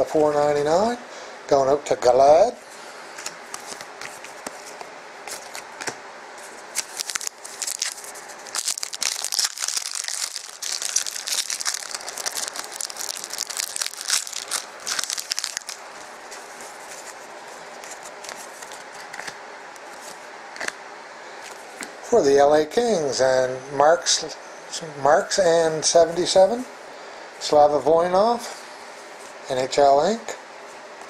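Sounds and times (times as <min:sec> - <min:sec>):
wrapper torn and crinkled: 0:06.7 - 0:16.2.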